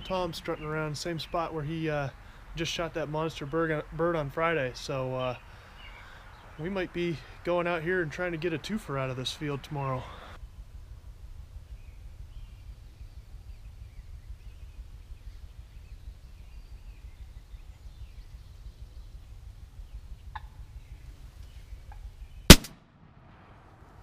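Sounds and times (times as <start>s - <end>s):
faint birdsong: 0.0s - 24.0s
low wind rumble: 0.0s - 24.0s
shotgun blast: 22.5s - 23.9s.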